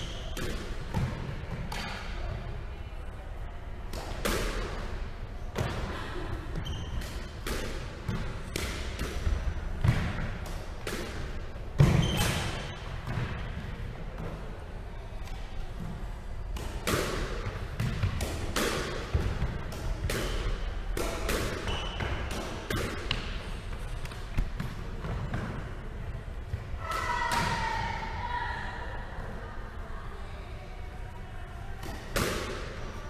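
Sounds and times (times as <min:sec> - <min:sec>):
squash racket hitting ball: 0:00.3 - 0:02.1, 0:03.9 - 0:05.8, 0:06.6 - 0:13.7, 0:16.5 - 0:23.4, 0:31.8 - 0:32.8
ball hitting court walls: 0:16.6 - 0:23.4.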